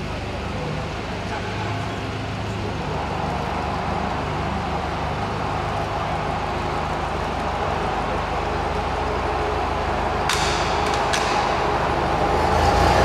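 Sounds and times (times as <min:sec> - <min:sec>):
propeller plane engines droning: 0:00.0 - 0:13.0.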